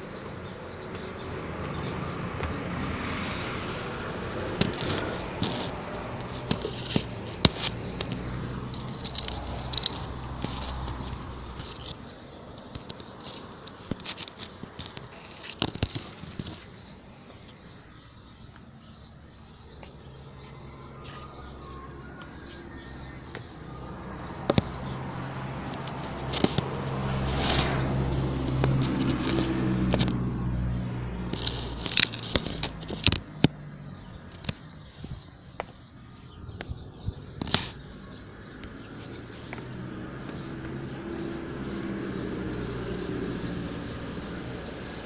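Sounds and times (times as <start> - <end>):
close rustling and crackling: 4.2 - 17.8, 24.4 - 33.6, 34.3 - 39.7.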